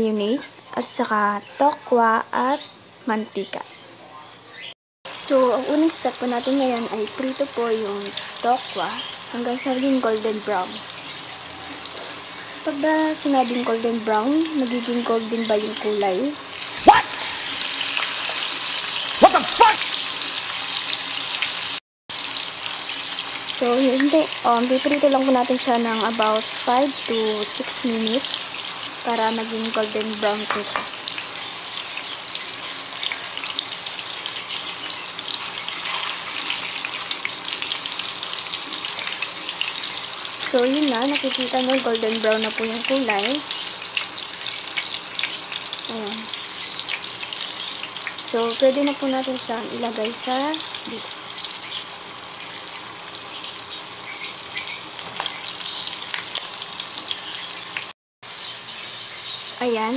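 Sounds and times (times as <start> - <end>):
tofu sizzling in hot oil: 5.1 - 59.9.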